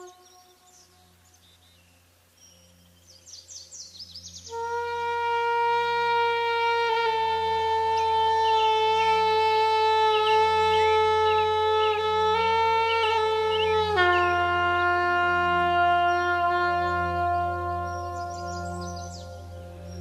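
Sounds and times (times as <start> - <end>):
horn long steady note: 0.0 - 20.0
low drone: 0.0 - 20.0.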